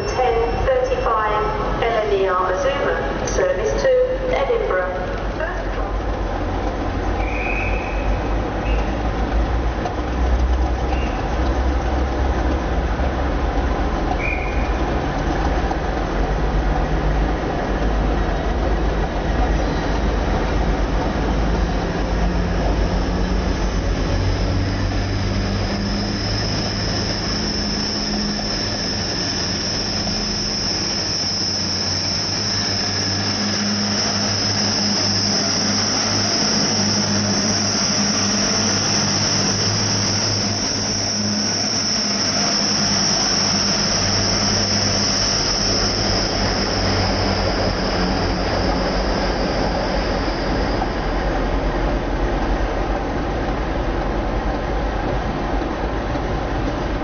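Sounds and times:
train engine humming: 0.0s - 57.0s
high-pitched whine: 19.1s - 52.8s.

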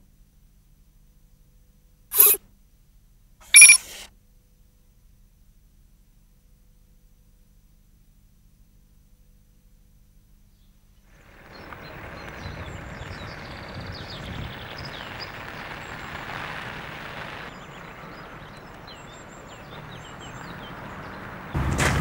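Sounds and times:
small birds chirping: 3.5s - 4.0s, 10.6s - 21.6s.

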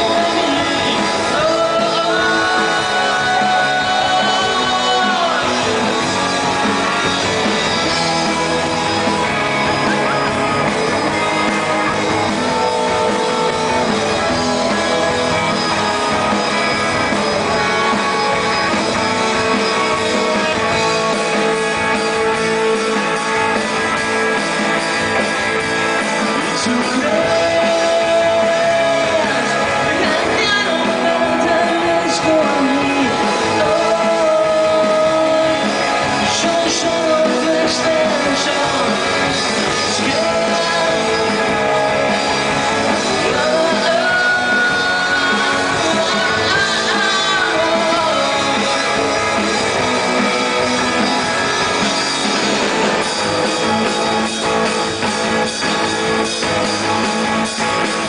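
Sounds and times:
man singing: 0.0s - 8.6s, 11.2s - 18.6s, 26.2s - 51.0s
rock band playing live: 0.0s - 58.0s.

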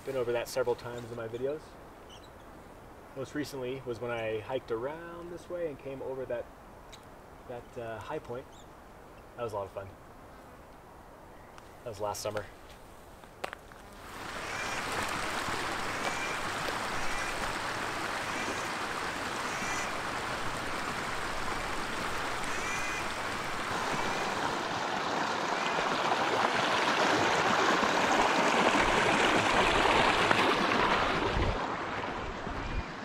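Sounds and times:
bird chirping: 0.9s - 2.6s, 8.4s - 9.4s
creek rushing over rocks: 13.9s - 33.0s.

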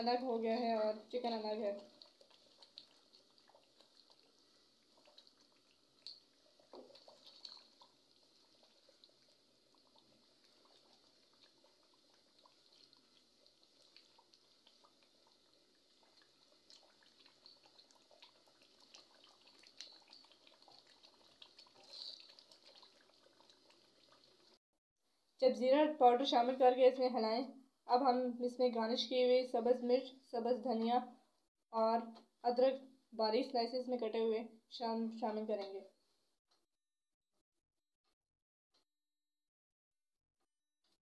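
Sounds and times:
stew bubbling and crackling: 1.0s - 24.6s.

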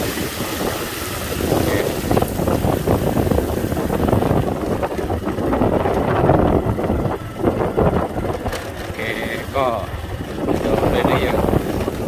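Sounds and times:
water hissing under tyres: 0.0s - 6.2s, 8.9s - 12.0s
motorcycle engine running: 0.0s - 12.0s
wind buffeting microphone: 0.0s - 12.0s.

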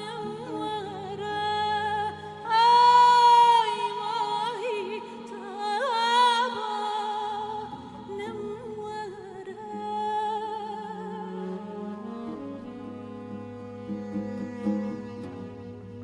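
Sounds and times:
woman singing with vibrato: 0.0s - 12.3s.

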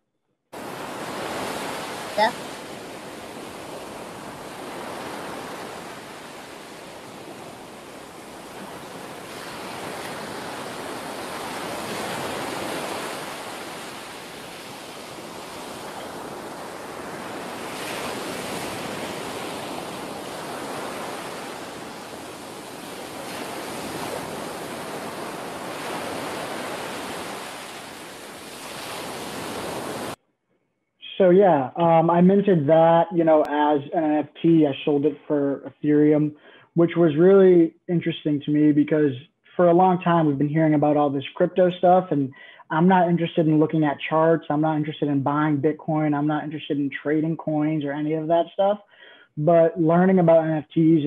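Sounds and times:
ocean waves washing: 0.5s - 30.2s.

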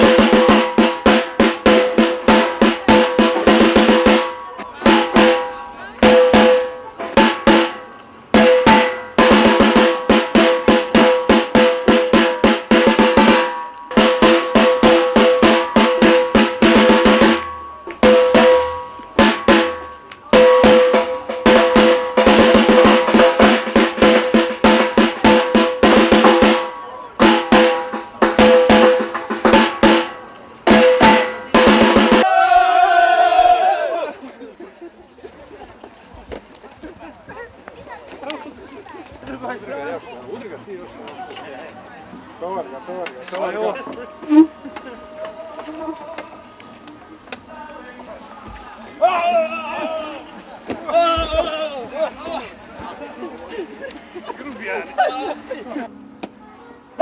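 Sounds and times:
snare drum rolls: 0.0s - 32.3s.

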